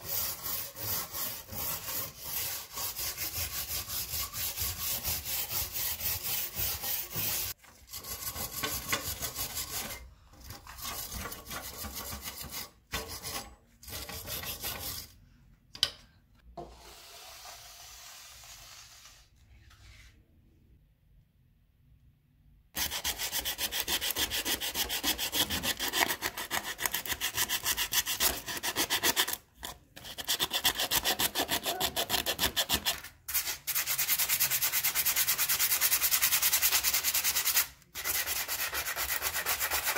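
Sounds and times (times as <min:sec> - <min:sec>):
sandpaper rubbing metal: 0:00.0 - 0:10.0, 0:30.0 - 0:39.9.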